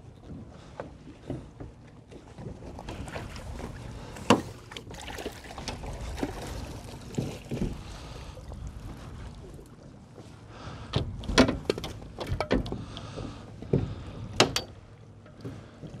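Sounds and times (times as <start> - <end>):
wind and water rumble: 0.0 - 16.0
gear knocking in a boat: 10.9 - 16.0.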